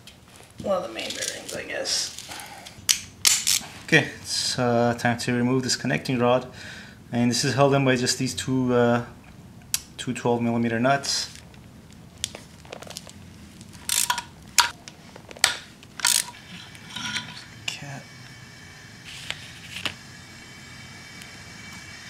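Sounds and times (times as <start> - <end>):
ratchet clicking: 13.8 - 14.7, 16.0 - 16.4.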